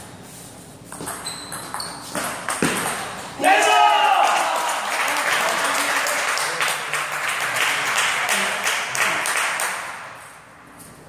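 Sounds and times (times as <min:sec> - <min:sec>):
crowd applauding: 0:03.8 - 0:10.1.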